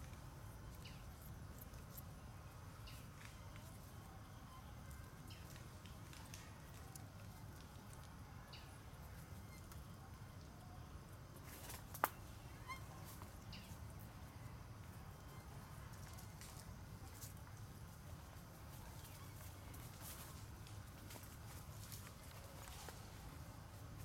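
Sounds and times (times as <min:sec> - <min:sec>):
faint clicks and rustles: 0:00.0 - 0:24.0.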